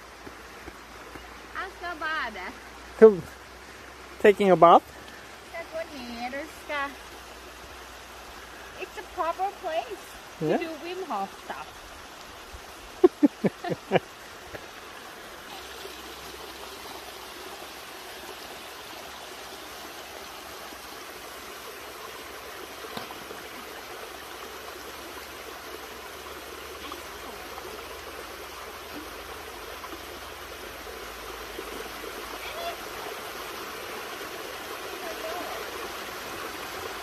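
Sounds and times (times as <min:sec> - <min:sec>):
waterfall rushing: 0:08.5 - 0:11.7, 0:23.0 - 0:37.0.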